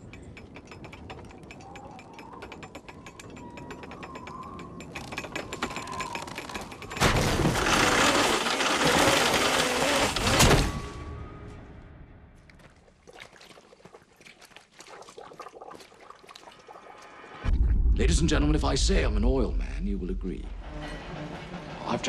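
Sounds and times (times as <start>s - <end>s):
drilling rig clicking and rattling: 0.0s - 10.6s.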